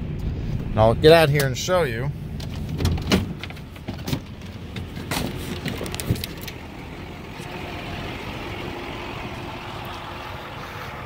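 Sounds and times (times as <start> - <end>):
truck door clicks and knocks: 2.4 - 6.5
diesel engine idling: 3.6 - 11.0.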